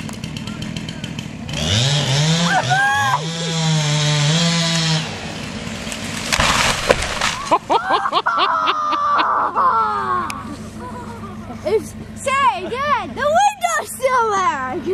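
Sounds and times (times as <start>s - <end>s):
chainsaw revving: 0.0s - 7.9s
branches rushing: 0.0s - 8.1s
people shouting: 2.4s - 3.3s
wood cracking and splintering: 3.9s - 7.8s
tree crashing onto roof: 3.9s - 8.0s.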